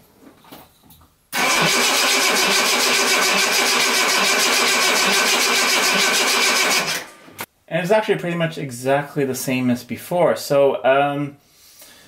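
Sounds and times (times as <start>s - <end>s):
engine cranking on starter motor: 1.4s - 7.4s.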